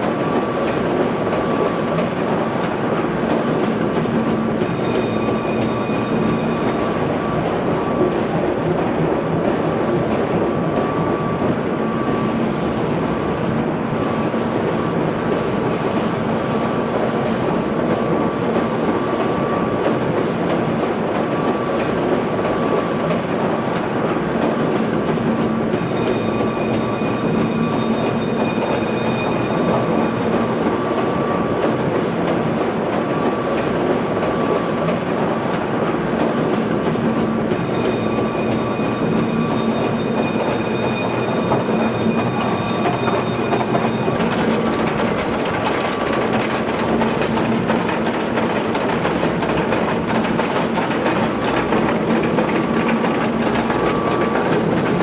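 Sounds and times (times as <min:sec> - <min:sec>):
faint high whining tones: 0:25.7 - 0:35.5, 0:37.4 - 0:55.0.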